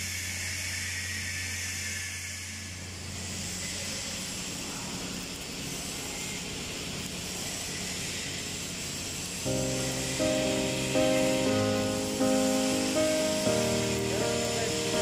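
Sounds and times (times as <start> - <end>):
arc welding hiss and crackle: 0.0 - 15.0
workshop noise: 4.1 - 15.0
music: 9.5 - 15.0.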